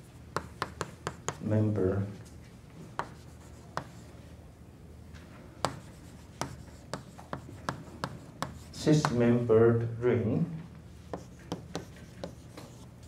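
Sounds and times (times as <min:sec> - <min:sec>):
chalk tapping and scratching: 0:00.3 - 0:01.5, 0:02.9 - 0:04.0, 0:05.6 - 0:09.2, 0:11.0 - 0:13.0.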